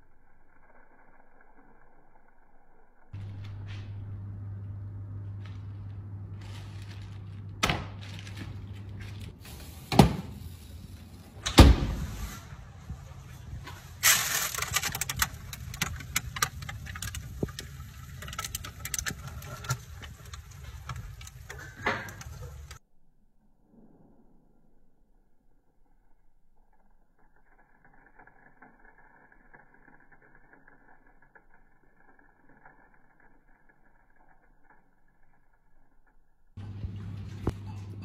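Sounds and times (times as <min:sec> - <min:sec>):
low hum: 0:00.0 - 0:38.0
rapid crackling and clicking: 0:13.5 - 0:22.8.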